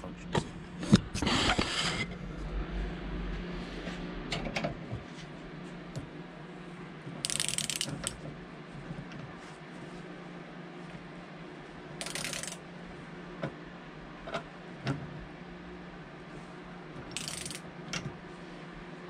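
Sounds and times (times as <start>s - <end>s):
ratchet clicks: 7.2s - 8.2s, 12.0s - 12.6s, 17.1s - 17.6s
wrench and socket clinking: 12.0s - 12.6s, 17.2s - 17.6s.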